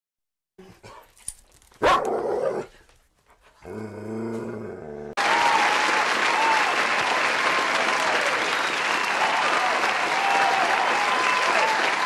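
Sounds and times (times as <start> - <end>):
low steady growl: 3.6 - 5.2
applause: 5.2 - 12.0.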